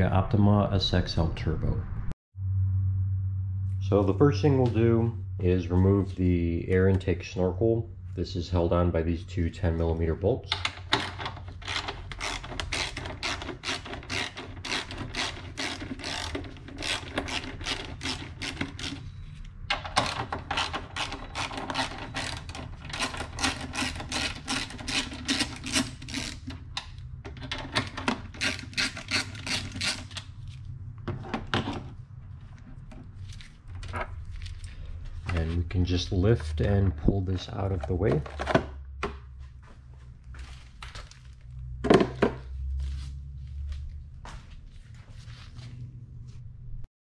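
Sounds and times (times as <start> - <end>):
socket ratchet clicking: 10.6 - 19.1.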